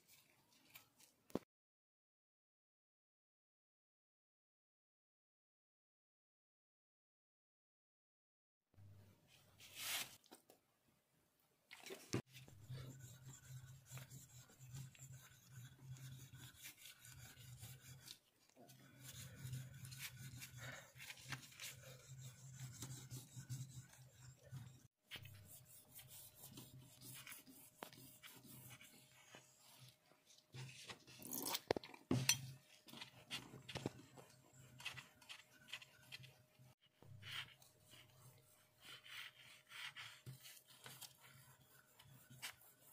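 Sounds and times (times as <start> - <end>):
blade scraping on whetstone: 12.6 - 28.9.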